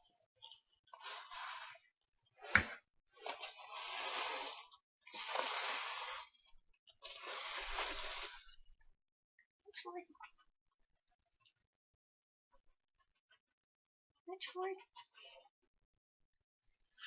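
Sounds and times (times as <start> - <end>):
plastic cups scraping on carpet: 0.5 - 1.8, 2.4 - 8.6.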